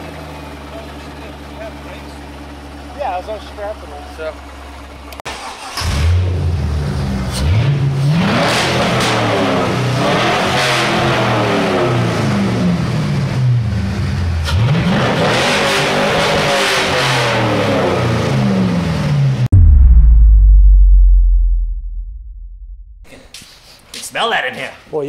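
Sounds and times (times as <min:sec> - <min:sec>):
car engine revving: 0:05.3 - 0:23.2.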